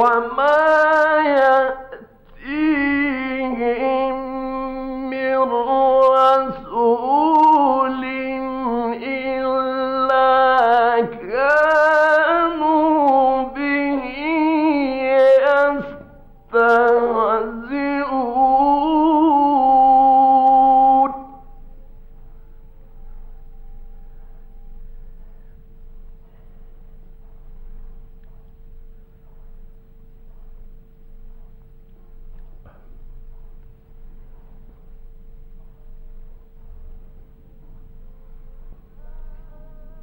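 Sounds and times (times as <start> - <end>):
man chanting recitation: 0.0 - 21.4.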